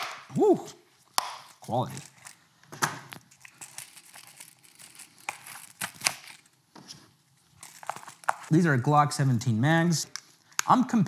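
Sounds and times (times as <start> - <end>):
plastic packaging crinkling: 1.4 - 2.5, 3.1 - 6.6, 7.5 - 8.6.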